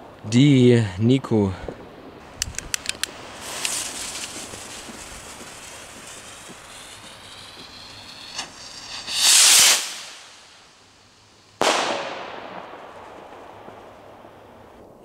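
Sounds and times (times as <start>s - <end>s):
firework rocket hissing: 2.2s - 14.6s
firework bang echoing: 3.1s - 10.7s, 11.6s - 15.0s.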